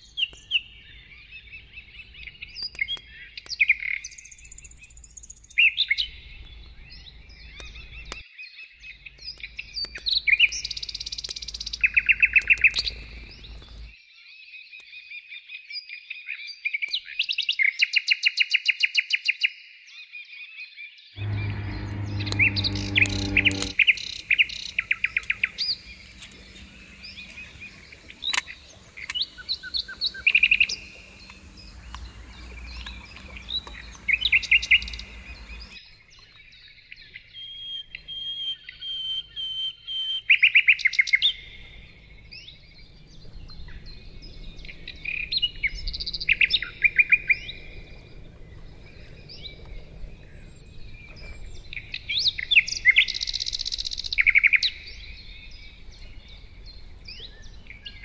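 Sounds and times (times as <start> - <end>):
songbirds singing: 0.0 - 16.6, 21.2 - 58.0
low outdoor background: 21.2 - 36.6, 37.4 - 58.0.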